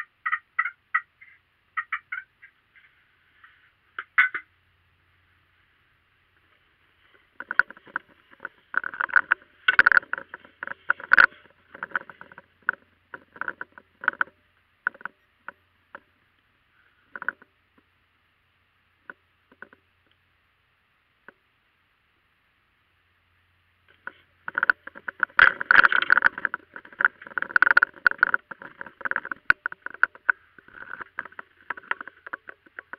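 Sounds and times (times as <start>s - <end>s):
turkey clucking: 0.0s - 4.5s.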